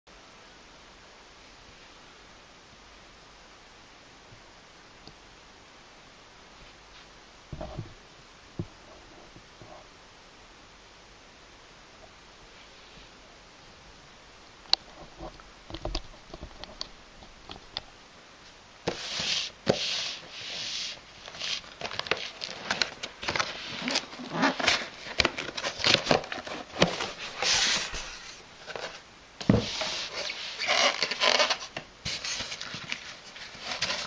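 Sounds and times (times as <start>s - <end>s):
cardboard scraping and rustling: 18.9s - 34.0s.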